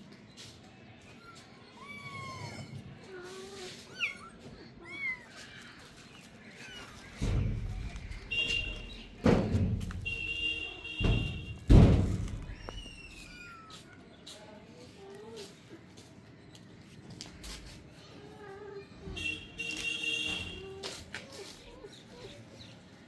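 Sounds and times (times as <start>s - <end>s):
heavy thumps: 7.1s - 12.8s.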